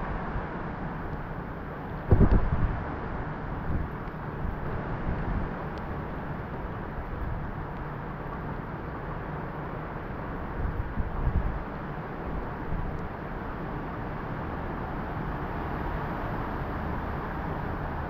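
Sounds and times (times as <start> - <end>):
wind buffeting microphone: 2.0 - 7.6, 10.5 - 11.7
strong wind rushing: 2.1 - 3.0.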